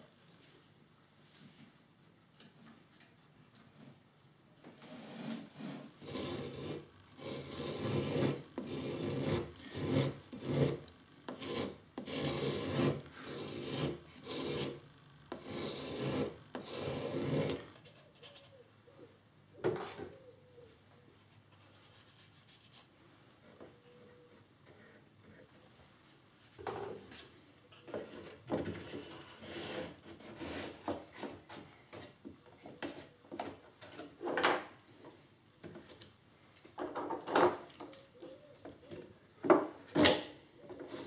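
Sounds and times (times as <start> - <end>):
hand plane shaving wood: 4.8 - 17.7, 29.2 - 31.3.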